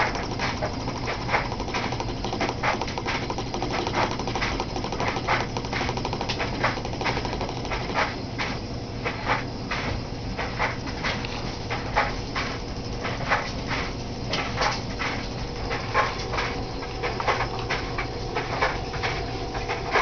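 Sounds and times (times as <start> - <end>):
sharp ticks: 0.0 - 8.2
engine piston mechanical rattle: 0.0 - 8.5
steady low hum: 0.0 - 20.0.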